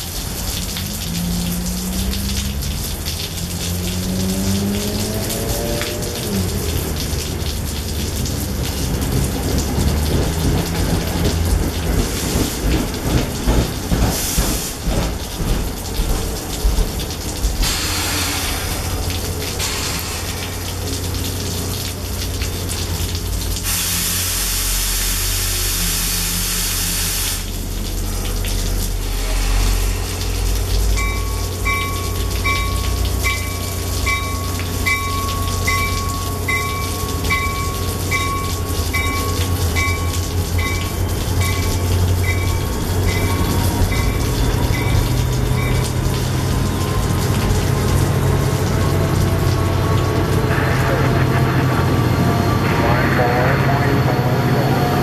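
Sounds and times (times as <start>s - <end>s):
rain falling: 0.0s - 53.2s
train humming: 0.0s - 55.0s
air hissing release: 17.6s - 19.0s, 19.6s - 20.8s, 23.6s - 27.5s, 29.0s - 31.0s
bell dinging: 30.9s - 46.0s.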